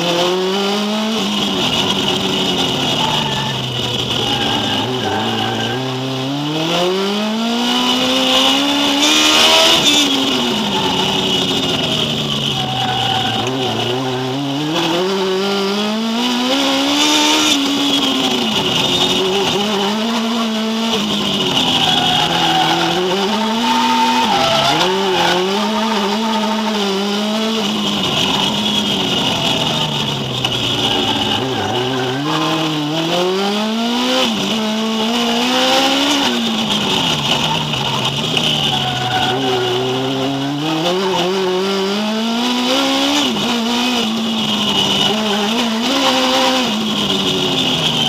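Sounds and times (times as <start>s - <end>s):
car engine revving: 0.0s - 48.0s
tyre squeal: 1.2s - 6.2s, 8.4s - 15.3s, 16.8s - 32.8s, 35.0s - 41.6s, 42.7s - 48.0s.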